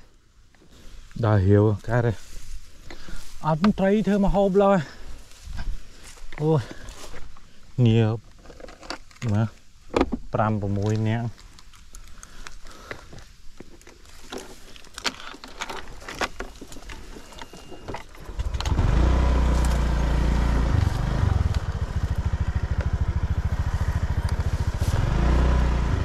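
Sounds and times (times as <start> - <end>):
clicks and knocks of handling: 8.3 - 18.8
small engine running: 18.2 - 26.0.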